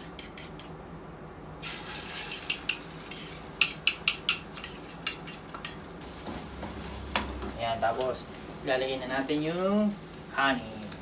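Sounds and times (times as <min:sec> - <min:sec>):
utensil scraping ceramic bowl: 0:02.2 - 0:05.8.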